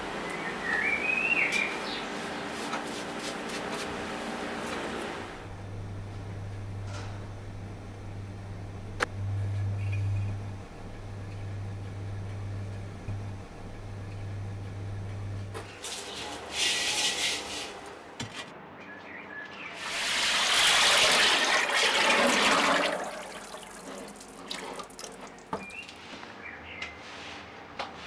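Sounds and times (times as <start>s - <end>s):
low steady hum: 5.1s - 15.6s
liquid pouring and splashing: 19.8s - 25.6s.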